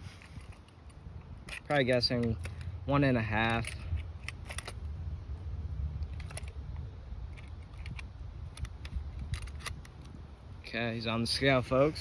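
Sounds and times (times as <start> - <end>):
small clicks and rattles: 7.3 - 10.2.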